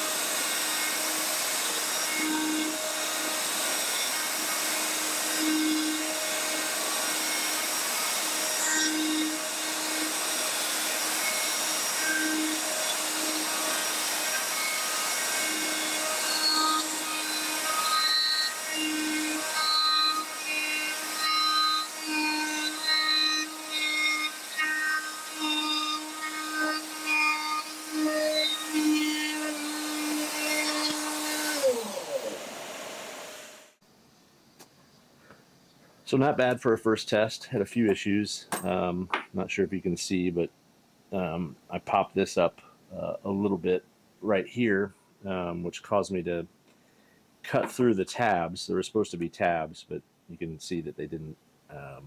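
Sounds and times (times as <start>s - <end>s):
router cutting plywood: 0.0s - 33.7s.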